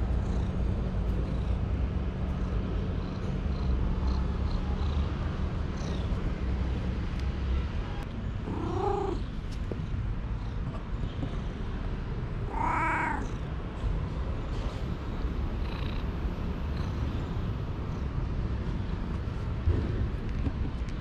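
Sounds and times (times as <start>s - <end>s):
cat meowing: 8.4s - 9.2s, 12.4s - 13.4s.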